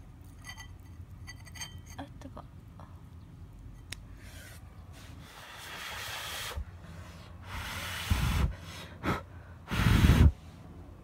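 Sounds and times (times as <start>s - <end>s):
breath puffs on microphone: 4.2s - 10.6s.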